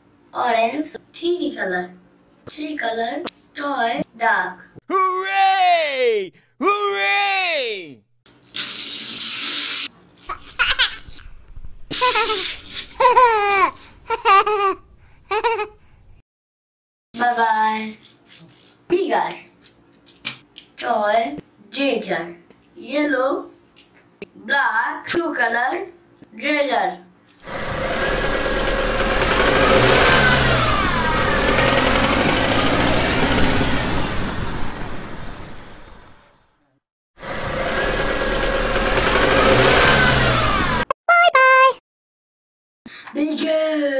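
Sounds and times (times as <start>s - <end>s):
high-pitched laughter: 10.3s - 11.2s, 11.9s - 15.8s
vehicle engine whining: 27.5s - 36.3s, 37.2s - 40.9s.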